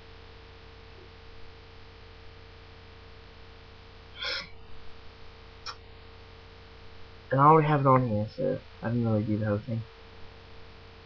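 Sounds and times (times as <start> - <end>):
faint steady tone: 0.0 - 11.0
mains hum: 0.0 - 11.0
short breath-like noise: 4.2 - 4.6.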